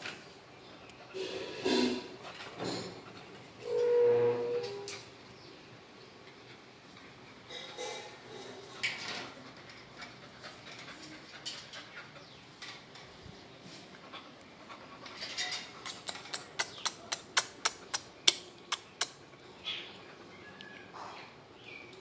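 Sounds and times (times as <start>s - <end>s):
metal gate rattling and clicking: 15.0s - 16.7s.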